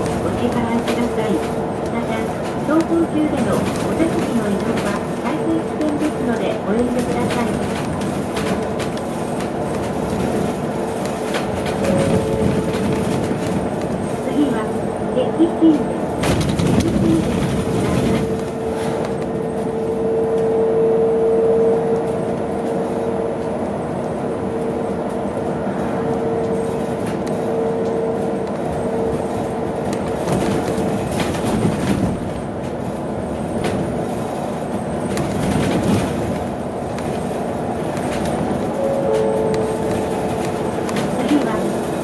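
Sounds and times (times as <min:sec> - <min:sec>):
road and tyre rumble: 0:00.0 - 0:42.0.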